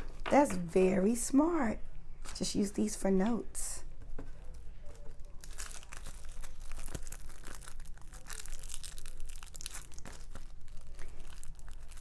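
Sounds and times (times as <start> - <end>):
plastic packaging crinkling: 4.4 - 12.0.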